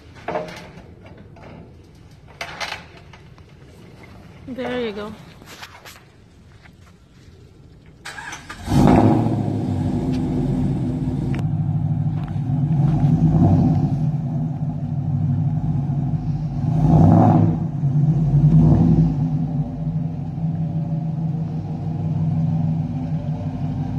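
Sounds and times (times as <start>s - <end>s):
pickup truck engine idling: 7.2s - 16.7s, 19.2s - 23.9s.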